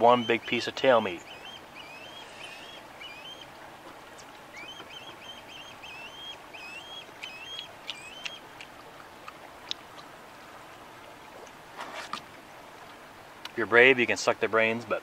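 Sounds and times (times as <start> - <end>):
bird whistled chirps: 1.2 - 3.4, 4.6 - 8.4.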